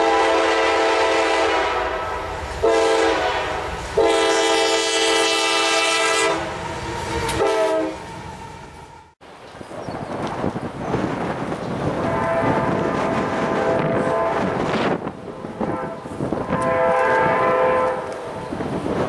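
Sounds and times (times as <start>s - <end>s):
locomotive air horn blasts: 0.0s - 8.2s, 12.0s - 18.2s
train rumbling: 0.0s - 19.0s.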